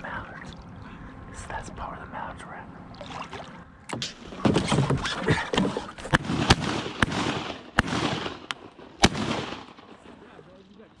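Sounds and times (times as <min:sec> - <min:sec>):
shotgun shots: 0:06.1 - 0:10.2.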